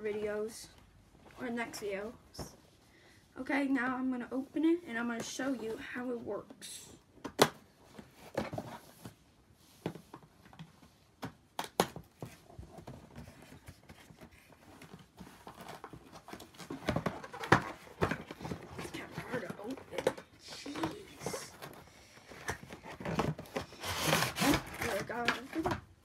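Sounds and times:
packaging rustling: 11.8 - 25.8.

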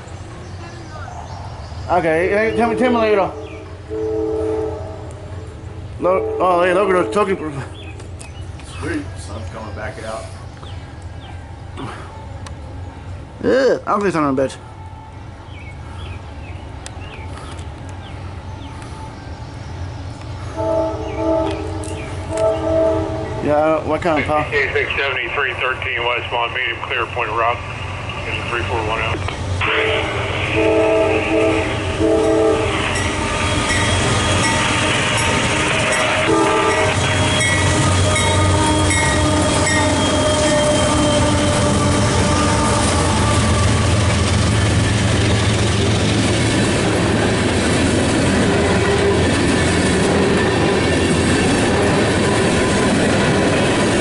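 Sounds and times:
freight train rumbling: 0.0 - 54.0
locomotive horn chord: 2.8 - 7.7, 20.5 - 23.8, 29.6 - 44.7.

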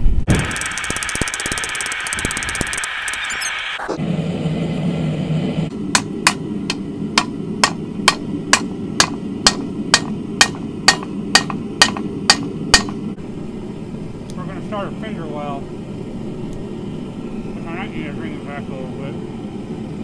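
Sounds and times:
forge humming: 0.3 - 20.0
hammer striking steel on anvil: 5.9 - 13.0.

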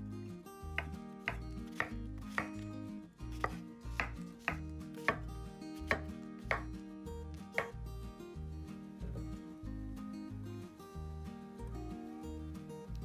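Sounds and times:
background music with bass line: 0.0 - 13.0
knife chopping on cutting board: 0.8 - 2.7, 3.3 - 6.7, 7.6 - 7.8.

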